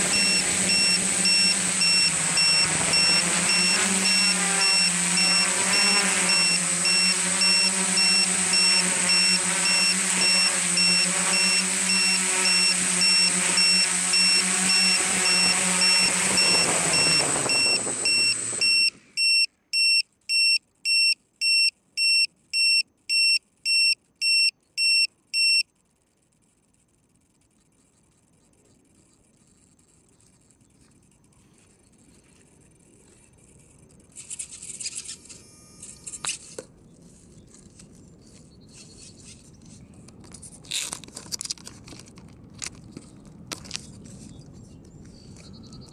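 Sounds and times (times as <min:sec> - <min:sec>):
drone motors humming: 0:00.0 - 0:19.2
electronic beeper chirping: 0:00.0 - 0:25.6.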